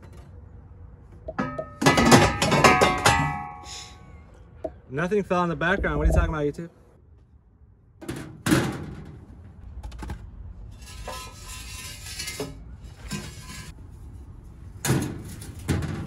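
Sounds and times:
metal parts clanking and scraping: 0:01.4 - 0:04.0, 0:10.7 - 0:13.8, 0:14.8 - 0:16.0.

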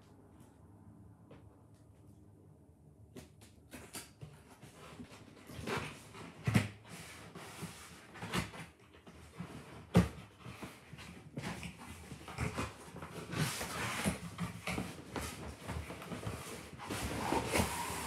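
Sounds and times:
cardboard scraping and rustling: 0:04.3 - 0:18.0.

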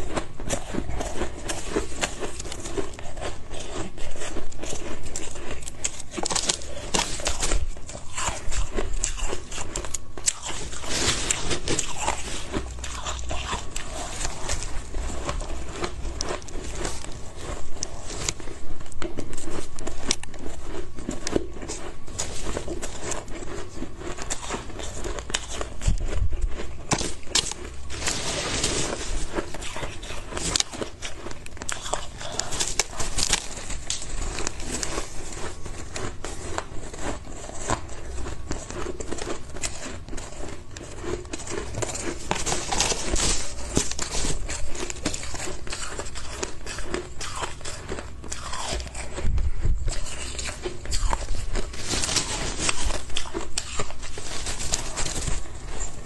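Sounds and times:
ice being chewed crunching: 0:00.0 - 0:56.0
hands scooping loose ice: 0:00.6 - 0:18.3, 0:27.4 - 0:31.0.

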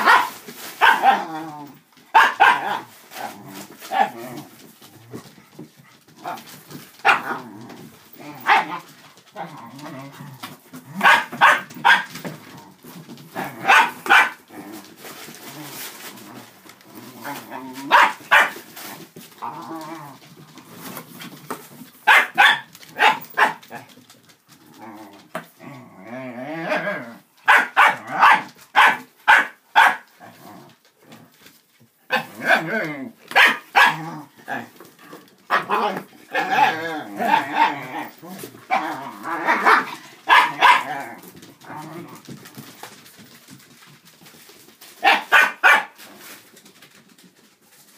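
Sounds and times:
dogs barking: 0:00.0 - 0:01.2, 0:02.1 - 0:02.9, 0:07.0 - 0:07.4, 0:08.4 - 0:08.8, 0:11.0 - 0:12.2, 0:13.6 - 0:14.4, 0:17.8 - 0:18.6, 0:22.0 - 0:23.8, 0:27.4 - 0:30.1, 0:33.3 - 0:34.0, 0:39.4 - 0:41.0, 0:45.0 - 0:46.0
dog growling: 0:00.9 - 0:01.8, 0:02.6 - 0:05.6, 0:06.2 - 0:11.1, 0:14.5 - 0:18.0, 0:18.9 - 0:20.9, 0:24.5 - 0:27.2, 0:30.2 - 0:31.4, 0:32.2 - 0:33.2, 0:33.8 - 0:42.4.

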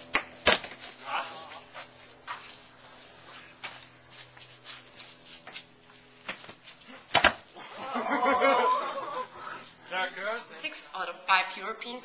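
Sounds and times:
person shouting or laughing: 0:01.0 - 0:01.6, 0:07.6 - 0:09.2.

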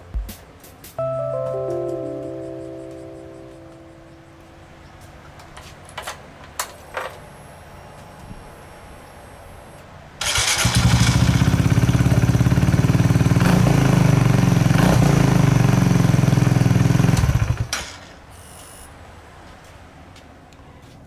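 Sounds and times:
motorcycle engine starting and idling: 0:10.2 - 0:18.2.

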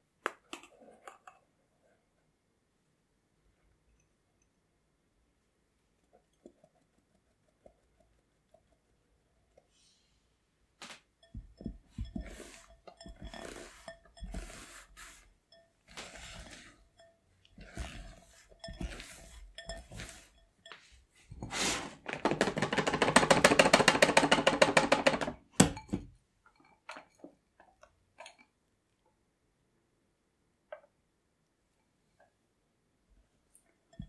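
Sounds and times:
whisk beating in glass bowl: 0:11.2 - 0:21.6
spatula scraping glass bowl: 0:11.2 - 0:22.0.

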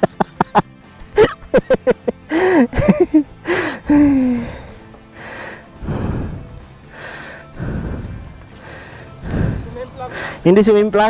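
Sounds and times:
heavy breathing: 0:02.3 - 0:10.5.

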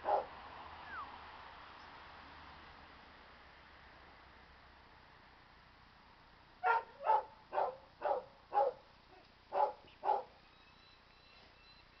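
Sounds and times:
bark-like animal calls: 0:06.6 - 0:08.8, 0:09.5 - 0:10.4.

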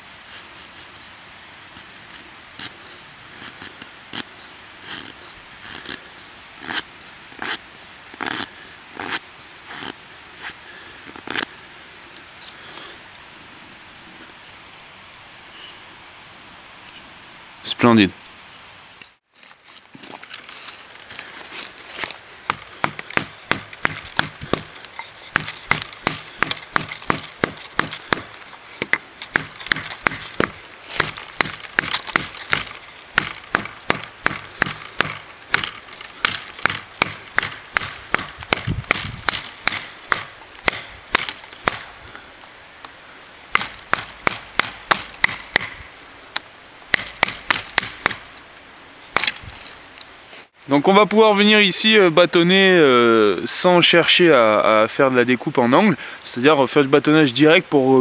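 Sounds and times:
knife chopping dry wood: 0:22.0 - 0:41.9, 0:43.5 - 0:45.9, 0:46.9 - 0:48.4, 0:49.2 - 0:49.7.

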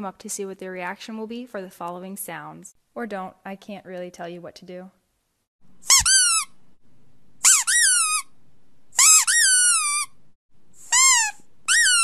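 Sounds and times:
high-pitched squeaks: 0:05.8 - 0:06.6, 0:07.4 - 0:08.3, 0:09.0 - 0:10.2, 0:10.8 - 0:12.0.

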